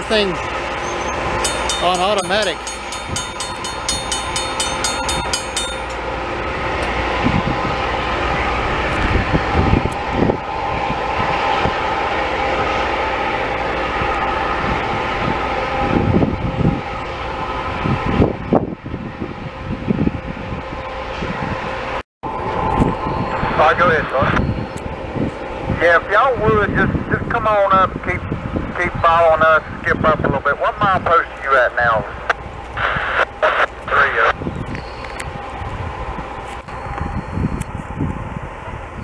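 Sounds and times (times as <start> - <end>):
rail grinding train grinding: 0.0 - 28.6
low rumbles: 0.0 - 39.0.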